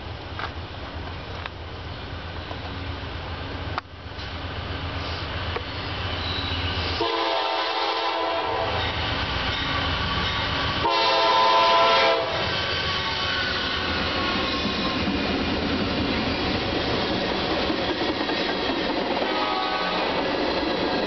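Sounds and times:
train rumbling: 0.0 - 21.0
locomotive air horn blasts: 6.9 - 9.0, 10.4 - 13.7, 19.2 - 20.2.

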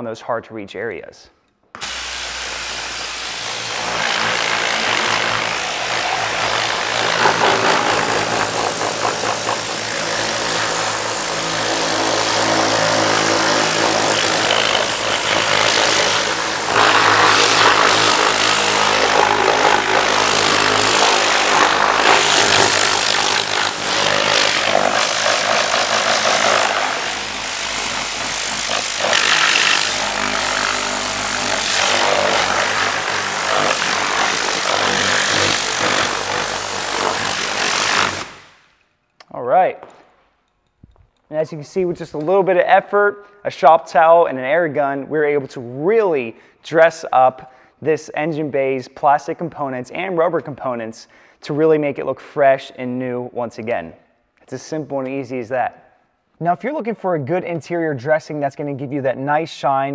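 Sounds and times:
air blow gun hissing: 1.8 - 38.6.

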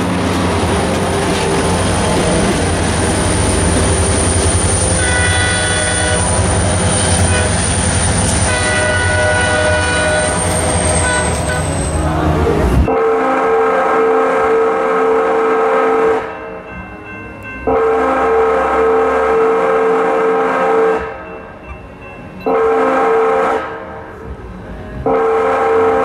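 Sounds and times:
train horn blasts: 4.7 - 16.4, 17.7 - 21.2, 22.5 - 24.0, 25.0 - 26.0.

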